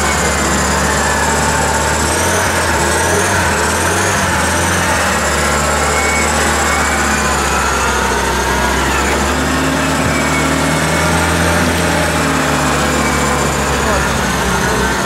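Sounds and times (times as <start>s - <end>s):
off-road vehicle engine running: 0.0s - 15.0s.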